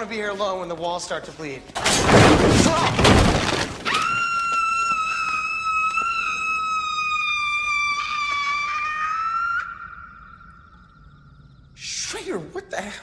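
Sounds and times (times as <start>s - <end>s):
loud crash: 1.8s - 3.9s.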